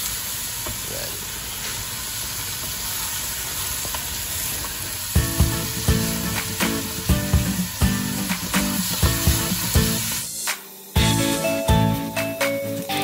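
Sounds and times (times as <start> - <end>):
meat sizzling in hot oil: 0.0 - 13.0
background music with a beat: 5.2 - 13.0.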